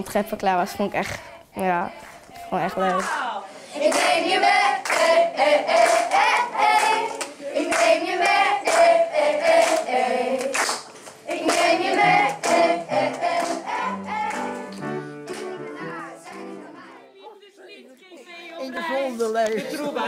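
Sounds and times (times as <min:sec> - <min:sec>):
children's choir singing: 0:00.0 - 0:19.0
hand clapping in time: 0:04.8 - 0:08.9, 0:09.6 - 0:15.7.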